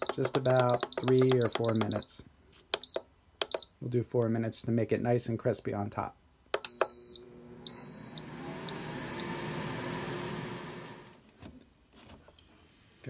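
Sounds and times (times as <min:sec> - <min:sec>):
control panel beeps: 0:00.0 - 0:02.1, 0:02.8 - 0:03.7, 0:06.6 - 0:09.3
fan whirring: 0:07.2 - 0:11.2.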